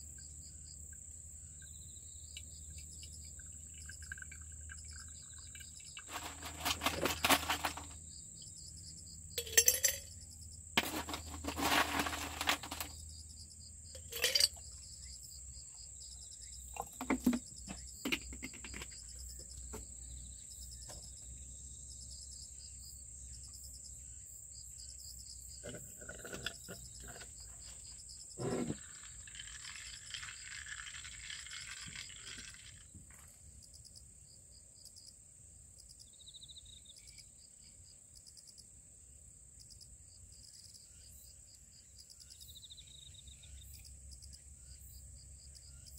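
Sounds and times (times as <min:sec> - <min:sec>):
high insect trill: 0:00.0 - 0:33.0
coffee pouring onto ice: 0:02.8 - 0:08.0, 0:09.4 - 0:10.0, 0:10.8 - 0:13.0, 0:14.0 - 0:14.6, 0:25.6 - 0:27.3, 0:28.4 - 0:33.0
glassware and ice clinking: 0:03.9 - 0:07.9, 0:09.4 - 0:10.1, 0:14.0 - 0:14.6, 0:25.6 - 0:27.3, 0:28.4 - 0:32.6.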